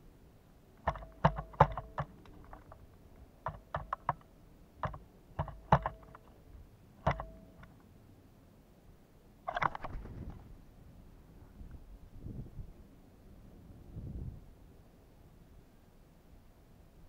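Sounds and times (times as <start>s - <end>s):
woodpecker pecking: 0.8s - 6.3s, 7.0s - 7.7s.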